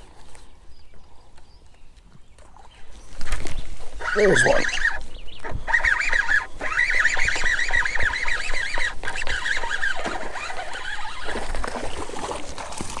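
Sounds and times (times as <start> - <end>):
bird chattering chirps: 4.0 - 9.8.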